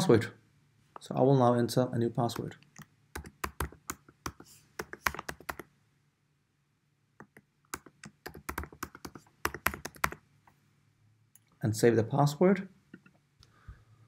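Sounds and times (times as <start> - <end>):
computer keyboard typing: 2.3 - 5.7, 7.2 - 10.2.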